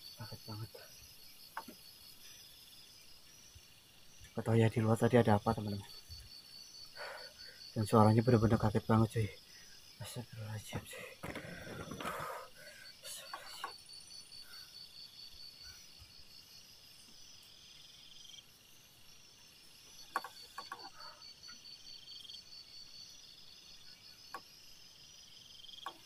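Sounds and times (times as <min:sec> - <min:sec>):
crickets chirping: 0:00.0 - 0:26.0
quiet clicks: 0:13.2 - 0:13.8.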